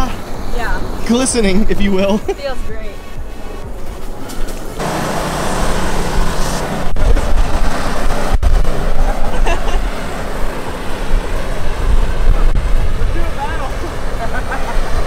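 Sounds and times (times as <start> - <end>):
truck engine starting and rumbling: 3.1 - 15.0.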